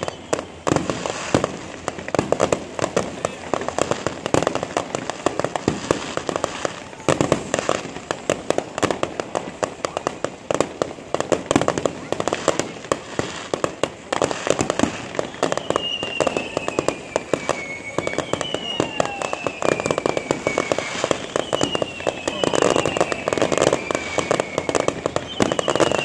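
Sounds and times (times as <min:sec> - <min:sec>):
firework whistle sliding down: 0:00.0 - 0:01.6, 0:14.6 - 0:26.0
fireworks crackling and popping: 0:00.0 - 0:26.0
loud firework bursts: 0:00.0 - 0:26.0.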